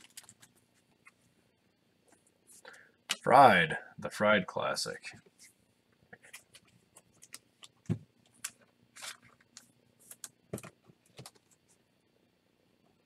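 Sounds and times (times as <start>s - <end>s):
cards handled clicks and rustles: 0.0s - 1.2s, 6.1s - 11.6s.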